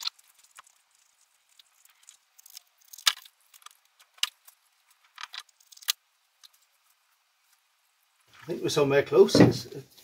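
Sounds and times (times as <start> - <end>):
cardboard crinkling: 0.0 - 7.6.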